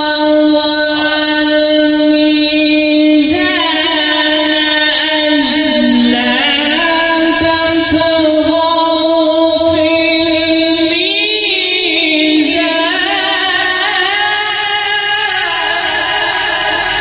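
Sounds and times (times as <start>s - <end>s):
man reciting melodically: 0.0s - 17.0s.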